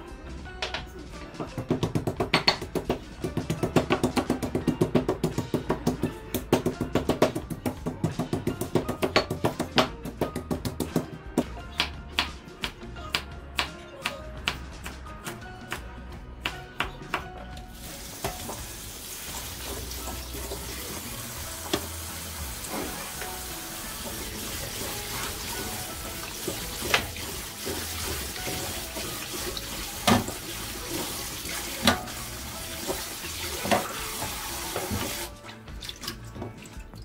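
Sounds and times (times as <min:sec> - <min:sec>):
tap water running into bowl: 0:17.8 - 0:37.0.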